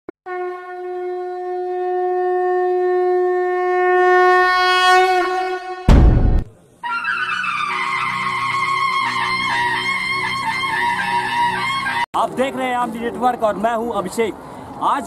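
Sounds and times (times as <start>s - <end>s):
conch shell blown: 0.3s - 6.0s, 6.8s - 12.0s.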